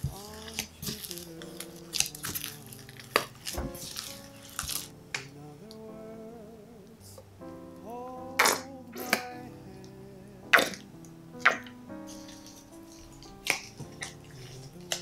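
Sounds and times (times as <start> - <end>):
dough squishing: 0.0 - 5.3, 11.4 - 15.0
soft background music: 0.0 - 15.0.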